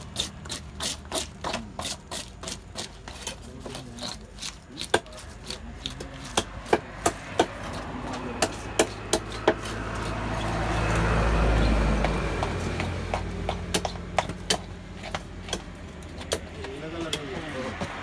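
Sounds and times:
vehicle engine hum: 0.0s - 18.0s
knife striking fish on cutting slab: 0.1s - 10.6s.

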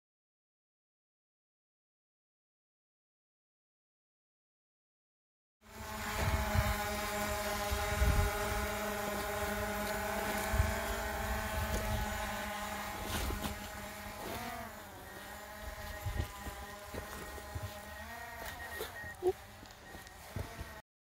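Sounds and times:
drone propellers humming: 5.6s - 20.8s
wind buffeting microphone: 7.6s - 8.8s.

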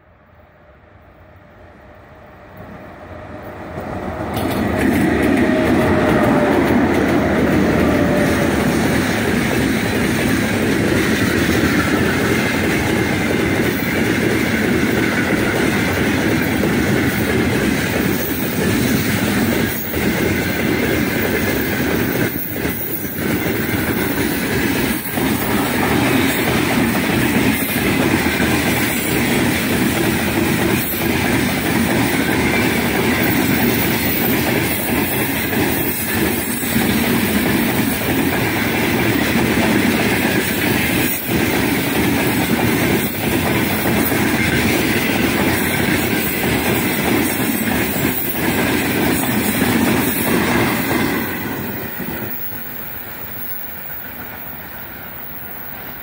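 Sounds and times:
freight train wheels rumbling: 0.0s - 56.0s.

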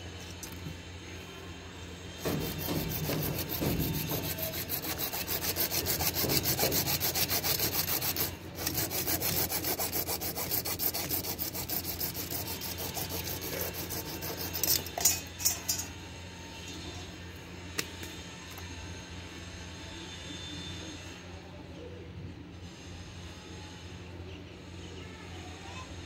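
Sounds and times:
hacksaw sawing through plastic pipe: 2.2s - 14.9s.

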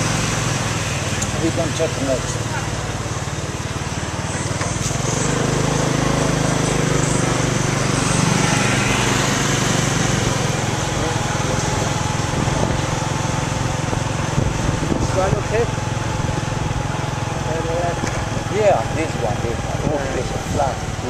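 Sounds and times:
scooter engine running: 0.0s - 21.0s
wind noise on microphone: 12.2s - 13.0s, 13.7s - 15.6s.

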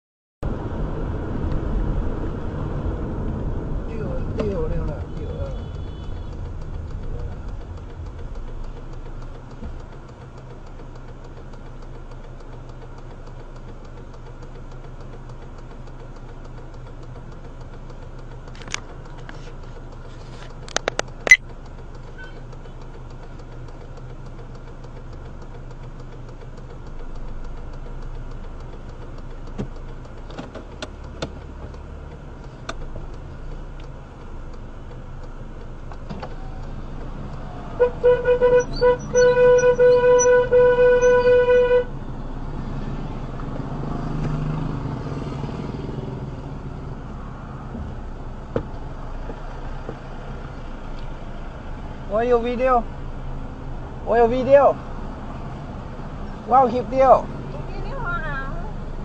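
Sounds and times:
car engine idling: 0.5s - 45.0s, 45.6s - 59.0s
sharp clicks: 4.3s - 41.7s.

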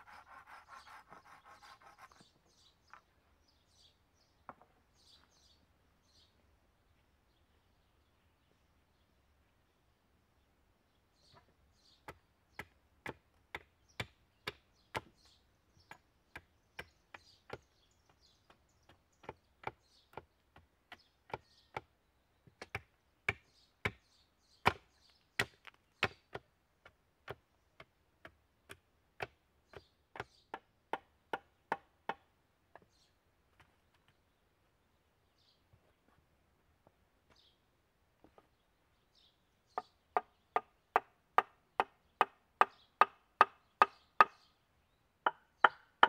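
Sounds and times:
hatchet chopping wood: 12.0s - 15.2s, 15.9s - 17.7s, 18.5s - 21.9s, 22.5s - 32.8s, 39.8s - 44.5s, 45.2s - 46.0s.

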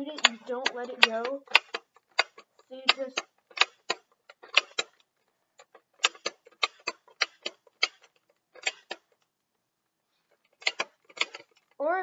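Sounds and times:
toy blaster hammer clicking: 0.1s - 5.0s, 5.6s - 9.1s.

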